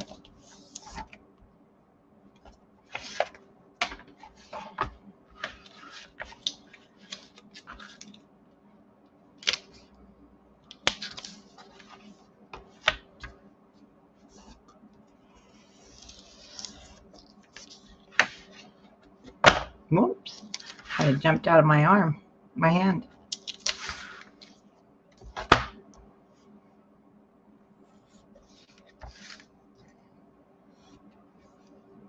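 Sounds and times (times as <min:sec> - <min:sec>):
paper rustling and sliding: 0:00.0 - 0:01.2, 0:02.4 - 0:08.2, 0:10.8 - 0:13.4, 0:15.3 - 0:18.9, 0:20.4 - 0:21.2, 0:23.5 - 0:24.7, 0:28.0 - 0:30.0.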